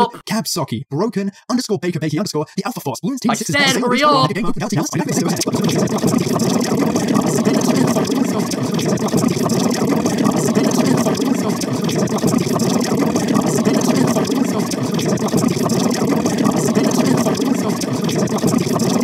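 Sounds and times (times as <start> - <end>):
layered cartoon voices babbling: 3.2 - 19.0.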